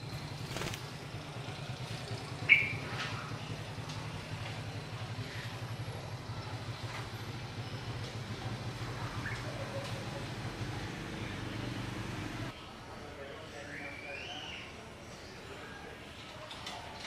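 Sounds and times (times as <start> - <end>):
bird chirp: 2.1 - 3.6.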